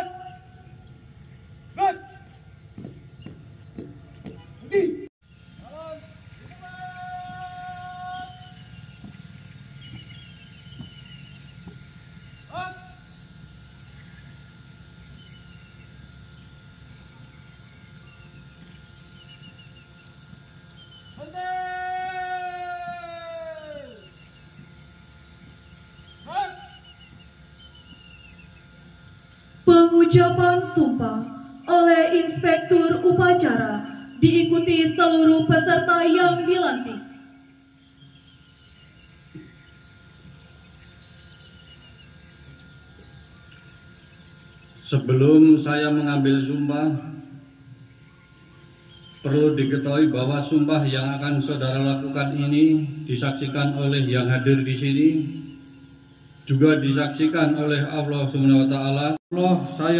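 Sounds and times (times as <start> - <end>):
faint bird chirps: 0.0 - 29.6, 36.7 - 45.0
faint outdoor background: 0.0 - 59.9
low steady background hum: 0.0 - 59.9
thin steady whine: 0.0 - 59.9
man shouting a drawn-out command: 1.8 - 2.3, 4.6 - 8.4, 12.5 - 13.0, 21.2 - 24.0, 26.2 - 26.8.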